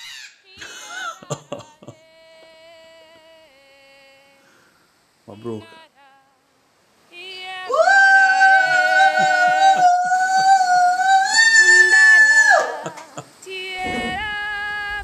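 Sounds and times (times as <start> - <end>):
woman ululating: 7.6 - 13.2.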